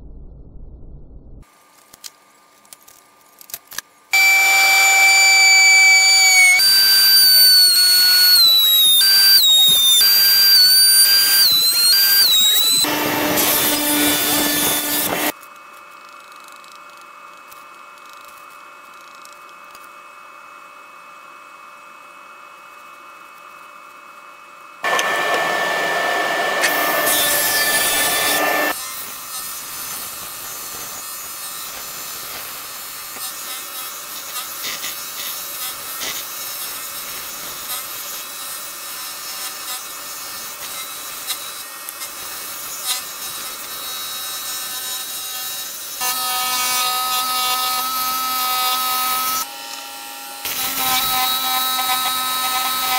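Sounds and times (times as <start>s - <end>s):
scroll saw cutting wood: 4.2s - 15.4s, 24.8s - 52.9s.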